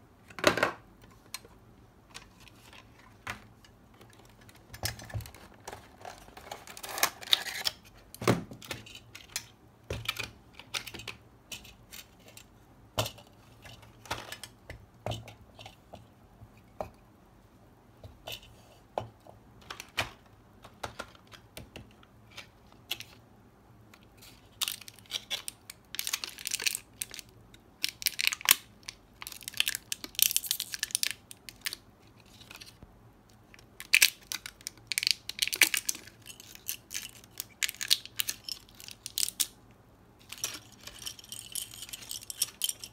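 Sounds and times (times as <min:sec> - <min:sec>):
plastic packaging crinkling: 0:24.5 - 0:32.8, 0:33.8 - 0:39.6
plastic and metal pieces clicking: 0:33.6 - 0:39.6.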